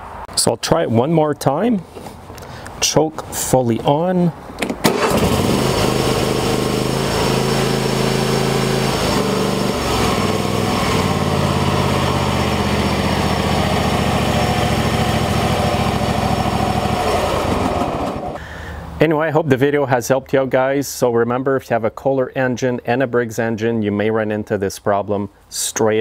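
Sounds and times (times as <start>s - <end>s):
lawn tractor engine running: 4.6s - 18.4s.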